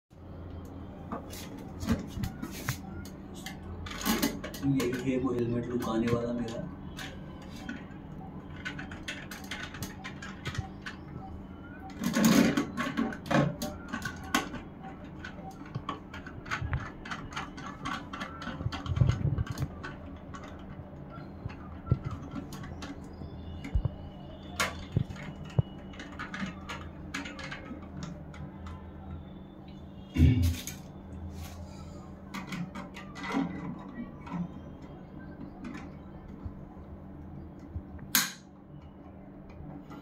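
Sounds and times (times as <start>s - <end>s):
low steady hum: 0.1s - 40.0s
plastic parts clicking and tapping: 0.6s - 29.8s, 32.1s - 36.6s.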